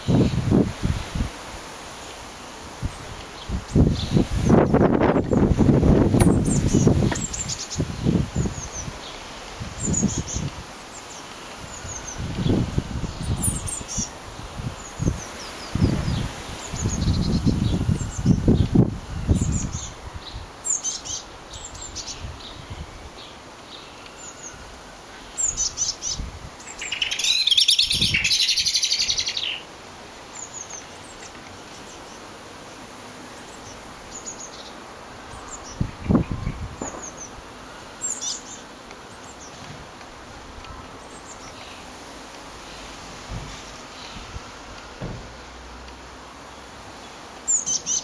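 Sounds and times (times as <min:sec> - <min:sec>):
wind rumbling on microphone: 0:00.0 - 0:01.8, 0:02.6 - 0:10.8, 0:11.6 - 0:20.6, 0:21.5 - 0:23.2, 0:25.4 - 0:29.4, 0:35.3 - 0:37.6
birds chirping: 0:01.9 - 0:45.5, 0:46.4 - 0:48.0
rapid chattering bird calls: 0:25.3 - 0:29.7.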